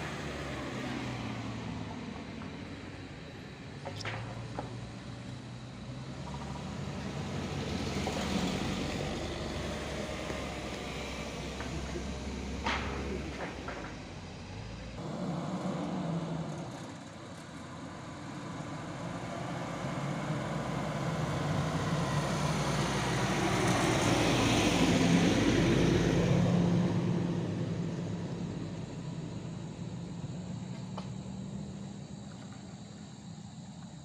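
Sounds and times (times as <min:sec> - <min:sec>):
vehicle passing: 0:00.0 - 0:33.3
pickup truck driving past: 0:00.0 - 0:33.8.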